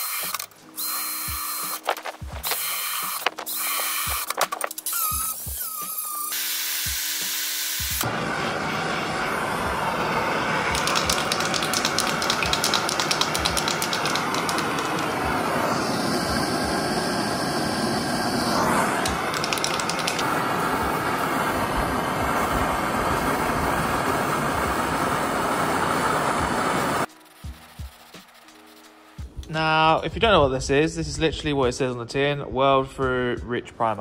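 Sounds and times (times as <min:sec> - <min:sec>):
gas blowtorch burning: 0:00.0 - 0:28.5
aerosol can spraying hiss: 0:00.0 - 0:29.0
aerosol can mixing ball rattling: 0:01.4 - 0:06.3, 0:10.6 - 0:16.2, 0:18.9 - 0:20.5.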